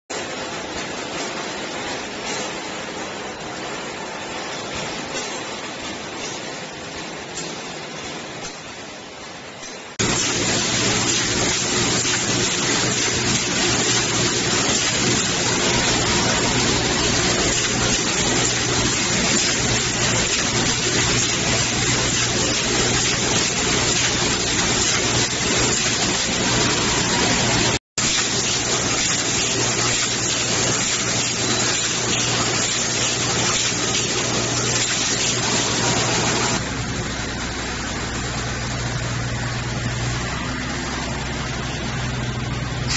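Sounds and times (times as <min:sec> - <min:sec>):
welding machine rushing hiss: 0:10.0 - 0:39.1.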